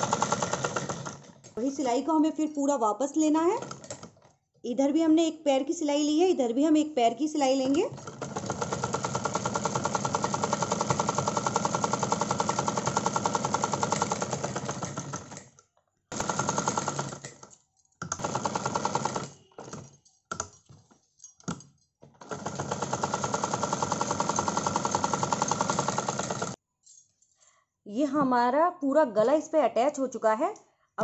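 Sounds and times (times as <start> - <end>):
sewing machine clicks: 0.0 - 1.7, 3.6 - 4.3, 7.7 - 20.7, 22.2 - 26.6
sewing machine stitching: 0.0 - 2.0, 3.4 - 4.3, 7.6 - 26.6.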